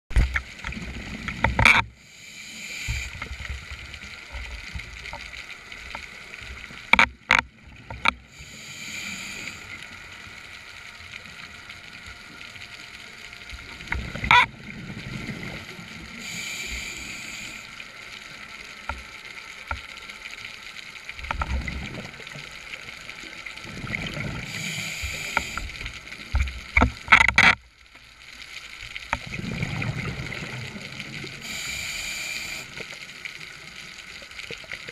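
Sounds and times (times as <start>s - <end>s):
hissing regulator inhale: 2.0s - 3.3s, 8.3s - 9.9s, 16.0s - 17.9s, 24.4s - 25.9s, 31.3s - 32.8s
sharp clicks and knocks: 6.9s - 8.2s, 26.3s - 27.6s
exhaled bubbles rumbling: 13.5s - 16.2s, 21.2s - 22.6s, 23.6s - 27.1s, 29.1s - 31.4s.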